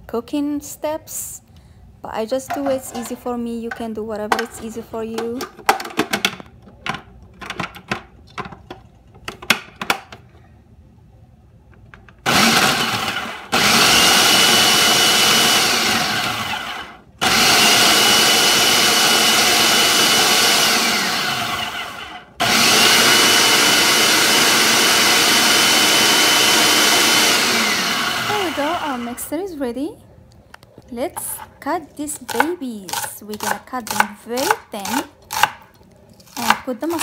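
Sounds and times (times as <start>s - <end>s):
food processor motor chopping: 12.2s - 29.2s.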